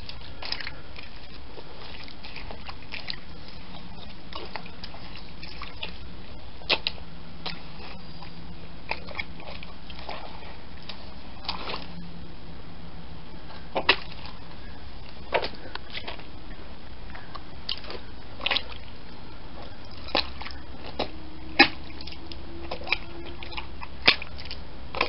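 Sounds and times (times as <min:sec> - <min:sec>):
sharp wet smacks: 0:00.0 - 0:06.0, 0:06.6 - 0:08.0, 0:13.8 - 0:14.4, 0:19.9 - 0:25.0
shoes squelching in wet mud: 0:00.0 - 0:06.0
steady background noise: 0:00.0 - 0:25.0.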